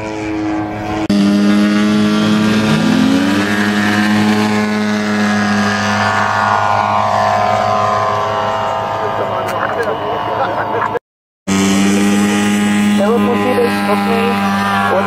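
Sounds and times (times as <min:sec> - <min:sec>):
model airplane engines running: 0:00.0 - 0:15.0.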